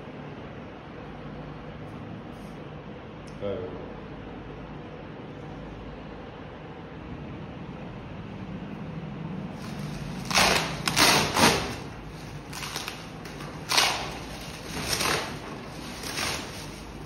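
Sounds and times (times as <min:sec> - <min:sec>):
plastic wrap crinkling: 0:09.6 - 0:17.0.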